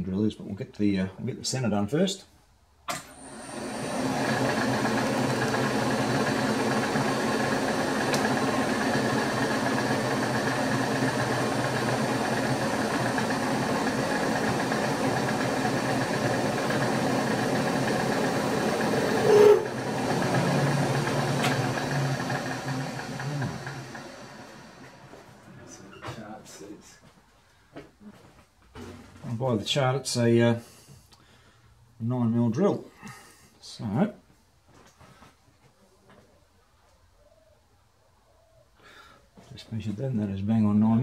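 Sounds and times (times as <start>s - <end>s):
milling machine spindle running: 3.1s - 25.5s
short loud tone: 19.2s - 19.7s.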